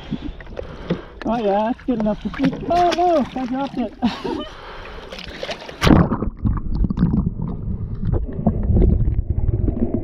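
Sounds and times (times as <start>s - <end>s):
muffled underwater churning: 0.0s - 10.0s
microphone splashing into water: 5.2s - 10.0s.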